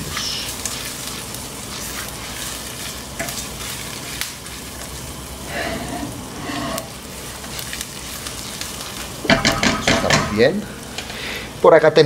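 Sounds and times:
spatula stirring and scraping: 0:00.0 - 0:09.6
rice sizzling in butter: 0:00.0 - 0:12.0.

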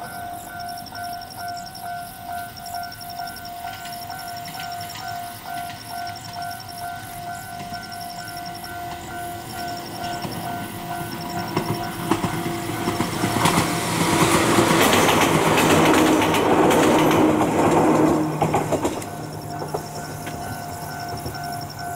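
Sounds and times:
train wheels clacking over rail joints: 0:02.4 - 0:21.9
train motor hum: 0:07.4 - 0:21.9.

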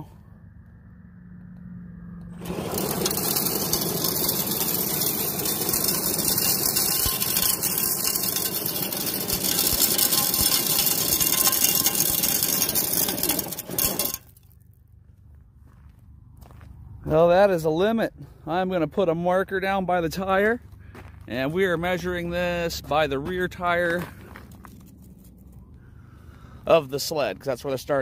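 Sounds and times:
electric motor whining: 0:02.2 - 0:14.2
sled scraping stones: 0:02.4 - 0:14.6
tyres churning gravel: 0:02.4 - 0:14.7, 0:15.6 - 0:28.0.

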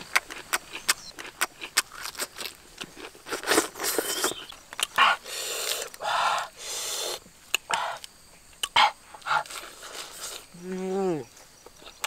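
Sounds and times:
lettuce leaves crackling and rustling: 0:09.4 - 0:11.0.

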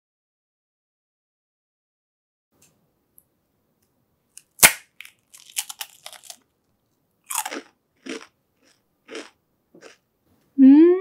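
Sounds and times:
crisp shell cracking: 0:04.4 - 0:06.4
crunchy chewing: 0:04.4 - 0:06.5, 0:07.2 - 0:10.0.

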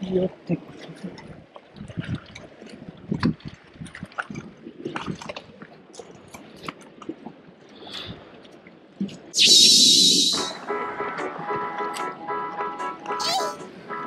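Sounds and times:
sea water sloshing among rocks: 0:00.6 - 0:09.4.

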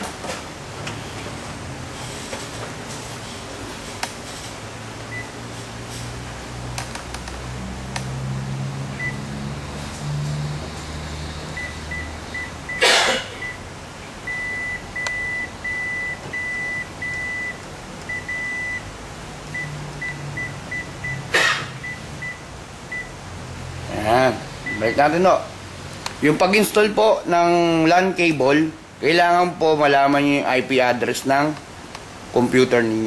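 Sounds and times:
longer beeps: 0:14.3 - 0:18.8.

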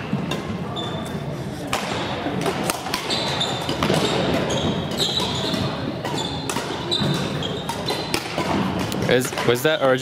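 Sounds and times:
sports hall din: 0:00.0 - 0:10.0
shoes squeaking on gym floor: 0:00.7 - 0:01.2, 0:03.0 - 0:08.1
rackets striking shuttlecocks: 0:01.7 - 0:09.8.

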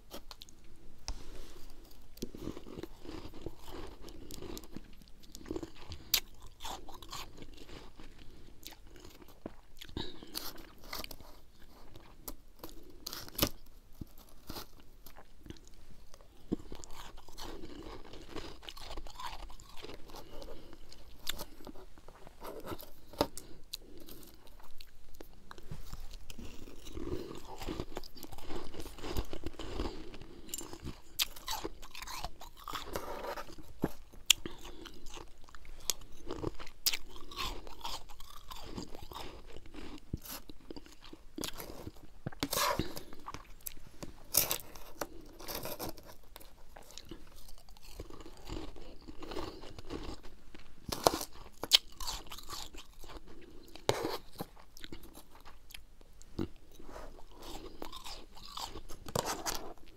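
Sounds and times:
frost being chewed: 0:00.0 - 0:59.9.

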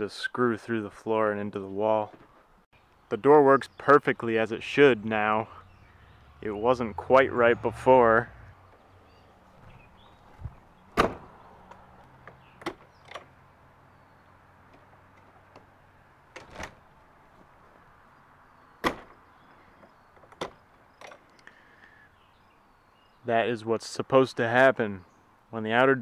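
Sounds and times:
door latch clicks and knocks: 0:16.3 - 0:16.8.

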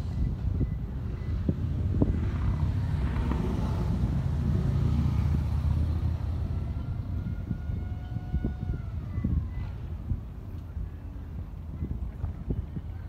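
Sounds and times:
low outdoor rumble: 0:00.0 - 0:13.0.

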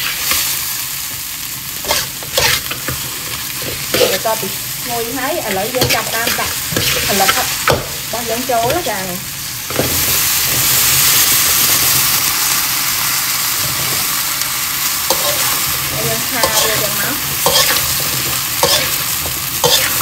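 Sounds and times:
stir-fry sizzling in a wok: 0:00.0 - 0:20.0
metal spatula scraping a wok: 0:01.8 - 0:04.4, 0:05.6 - 0:07.5, 0:15.1 - 0:20.0.

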